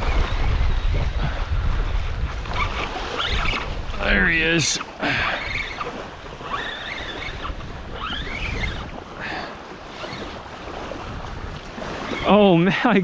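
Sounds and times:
small waves washing on shore: 0:00.0 - 0:13.0
wind rumbling on microphone: 0:00.0 - 0:13.0.

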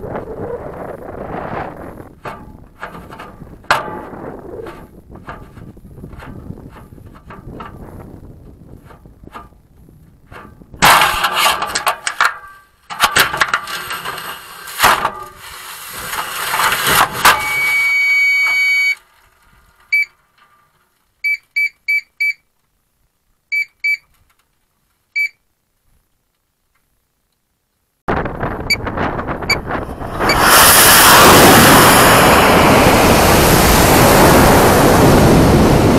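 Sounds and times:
rushing wind: 0:00.0 - 0:12.3, 0:28.1 - 0:35.9
short electronic beeps: 0:17.4 - 0:19.0, 0:19.9 - 0:20.1, 0:21.2 - 0:22.4, 0:23.5 - 0:24.0, 0:25.2 - 0:25.4
steady electronic beep tone: 0:17.4 - 0:19.0.

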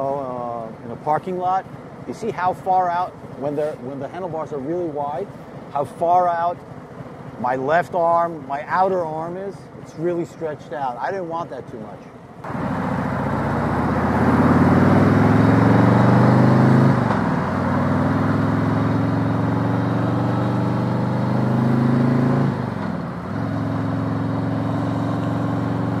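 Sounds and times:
motorcycle engine under way: 0:12.2 - 0:26.0.

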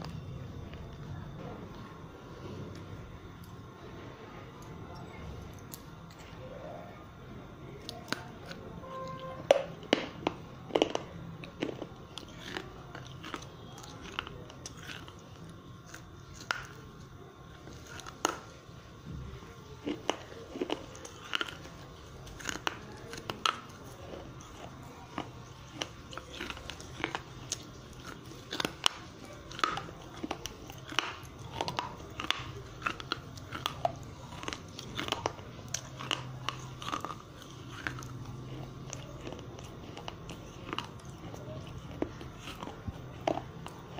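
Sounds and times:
clay pieces crunching when chewed: 0:04.6 - 0:06.5, 0:07.6 - 0:43.9.

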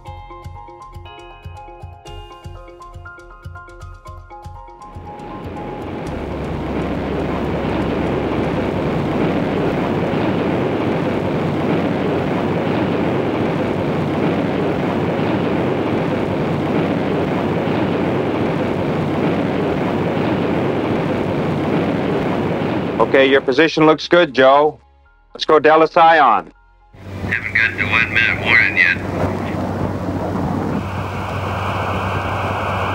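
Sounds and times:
jet engine noise: 0:04.8 - 0:23.7, 0:27.0 - 0:32.9.

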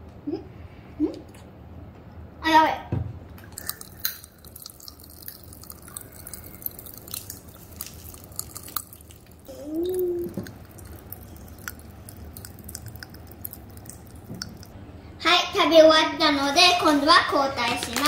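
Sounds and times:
popping candy crackling: 0:03.4 - 0:14.8, 0:17.6 - 0:18.0
child saying ooh: 0:09.5 - 0:10.4.

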